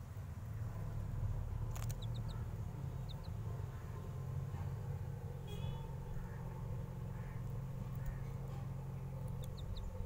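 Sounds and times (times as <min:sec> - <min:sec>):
steady low rumble: 0:00.0 - 0:10.0
chick cheeping: 0:01.9 - 0:02.4, 0:03.0 - 0:03.4.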